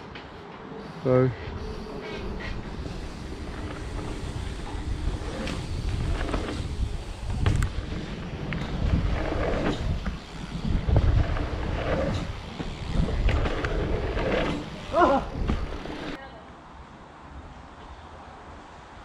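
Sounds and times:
wind buffeting camera: 0:01.5 - 0:16.2
bike knocking and rattling: 0:02.8 - 0:16.2.

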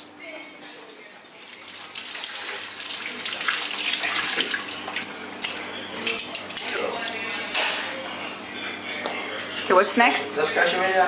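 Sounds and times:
water splashing while rinsing: 0:01.3 - 0:05.1.

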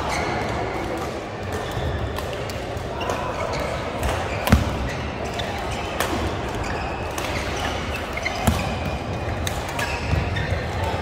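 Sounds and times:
rackets striking shuttlecock: 0:03.9 - 0:11.0.

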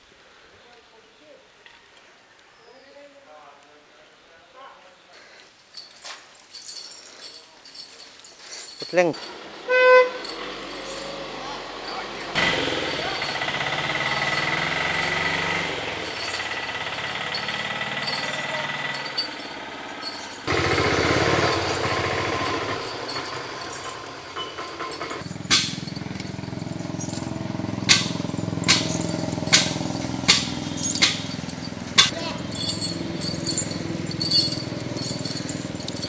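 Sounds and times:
iron chain clinking: 0:05.1 - 0:36.0
road noise: 0:05.4 - 0:36.0
engine running: 0:09.2 - 0:36.0.

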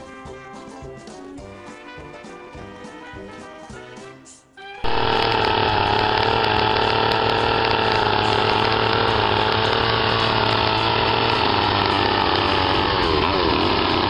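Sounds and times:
chainsaw cutting log: 0:04.8 - 0:14.0.

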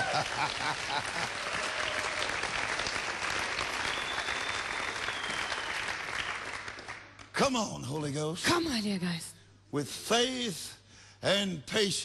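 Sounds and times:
congregation applauding: 0:00.0 - 0:07.4.

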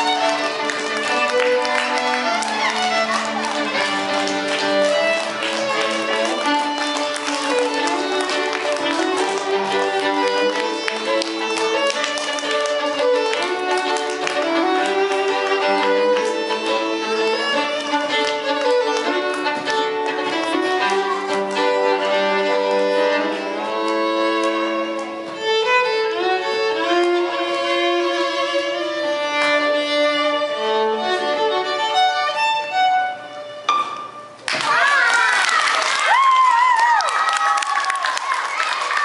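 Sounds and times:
two violins playing a duet: 0:00.0 - 0:33.8.

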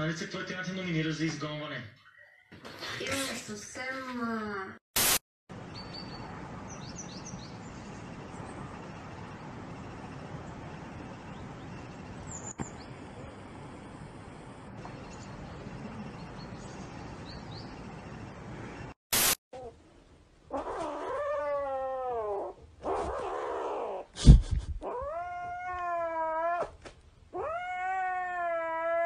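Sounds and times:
kitten yowling: 0:20.5 - 0:24.0, 0:24.8 - 0:26.8, 0:27.4 - 0:29.0.

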